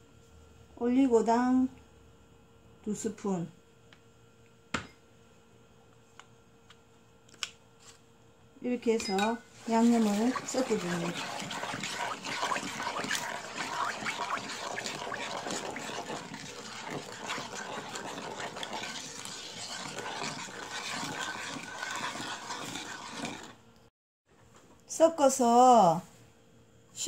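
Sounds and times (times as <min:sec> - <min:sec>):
spoon scraping pan: 0:09.6 - 0:23.6
spoon stirring thick sauce: 0:09.6 - 0:23.6.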